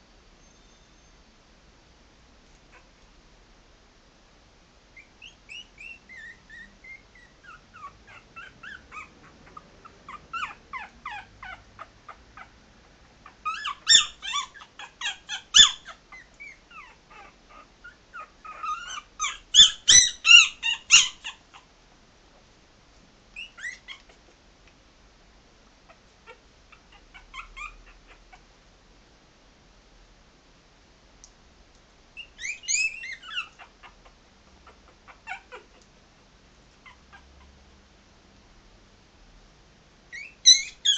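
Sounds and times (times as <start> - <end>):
puppies whimpering and yelping: 5.0 - 12.6, 13.2 - 21.7, 23.4 - 24.3, 26.2 - 28.4, 32.2 - 35.8, 36.8 - 37.5, 40.1 - 40.9.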